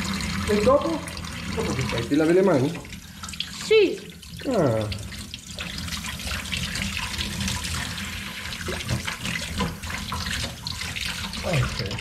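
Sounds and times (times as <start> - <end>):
tap running into steel sink: 8.6 - 10.6.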